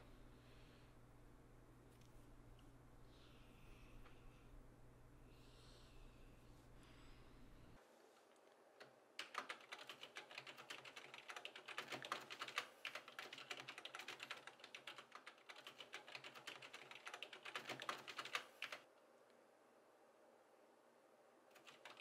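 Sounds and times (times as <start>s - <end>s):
fast typing on keyboard: 9.2s - 18.8s, 21.5s - 22.0s.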